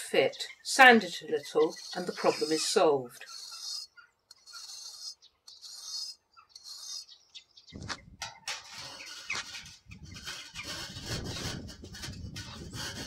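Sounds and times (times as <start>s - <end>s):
brick rasping on brick paving: 1.6s - 7.2s, 8.6s - 13.0s.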